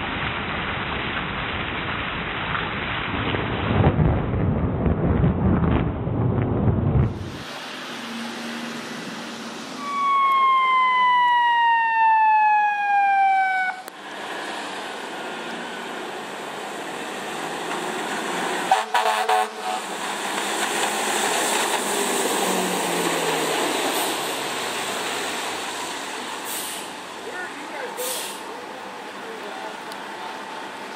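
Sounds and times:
rain and wet road hiss: 0.0s - 4.1s, 7.1s - 10.6s, 12.7s - 30.9s
fire engine siren: 7.1s - 28.9s.

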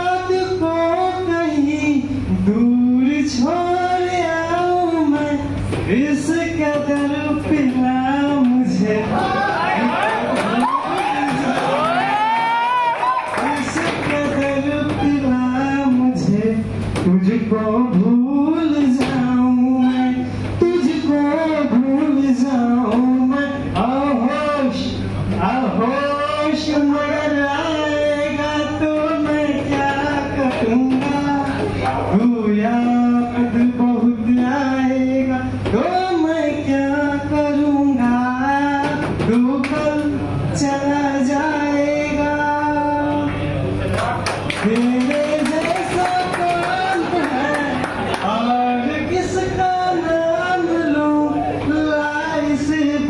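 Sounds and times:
man singing: 0.0s - 9.9s, 13.3s - 43.5s, 44.5s - 53.0s.

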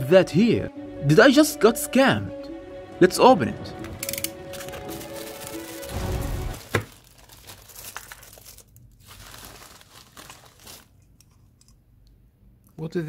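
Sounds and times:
background music: 0.0s - 6.7s
plastic mailer bag tearing: 4.5s - 11.0s.

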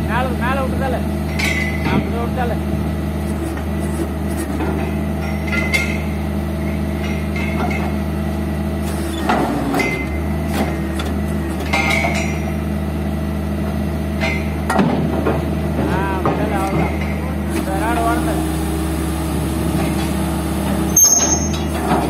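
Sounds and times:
drilling rig engine running: 0.0s - 22.0s
sharp metallic clanks: 1.3s - 2.2s, 4.6s - 8.0s, 20.9s - 22.0s.

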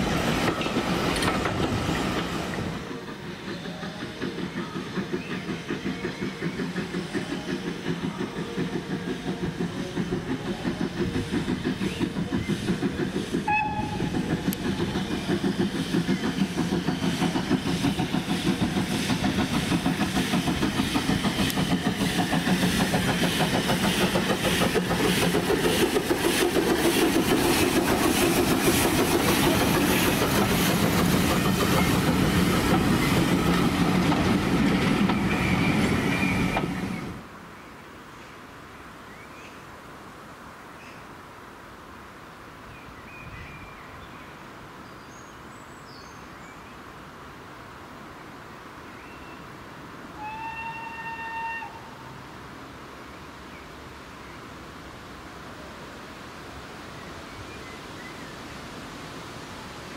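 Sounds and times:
steam locomotive exhaust beats: 0.0s - 37.3s
steam whistle: 13.5s - 14.2s, 50.2s - 52.2s.

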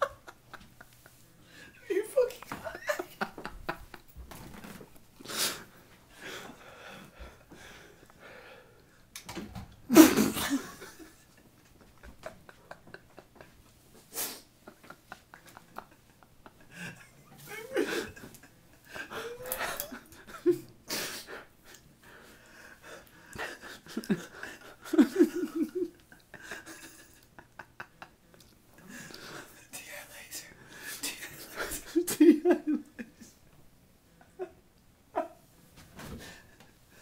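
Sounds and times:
person laughing: 0.0s - 1.2s, 1.8s - 4.0s, 9.9s - 21.8s, 23.4s - 28.1s, 31.0s - 33.4s.

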